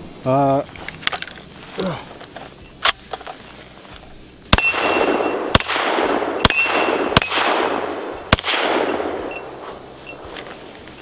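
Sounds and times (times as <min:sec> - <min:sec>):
rifle shots with long echo: 0:04.5 - 0:09.9.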